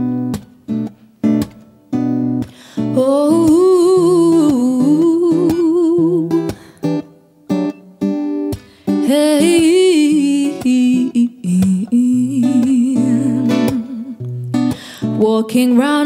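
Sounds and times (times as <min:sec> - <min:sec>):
acoustic guitar chords: 0:00.0 - 0:16.0
wordless singing with vibrato: 0:03.0 - 0:06.7, 0:09.0 - 0:16.0.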